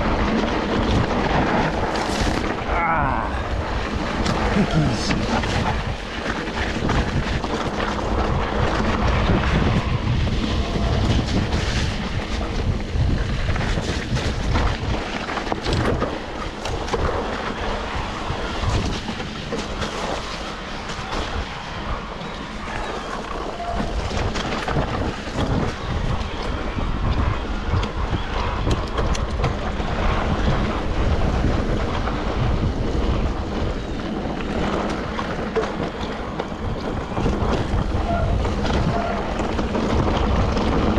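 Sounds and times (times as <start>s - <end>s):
low rumble: 0.0s - 14.9s
wind noise on microphone: 0.0s - 40.9s.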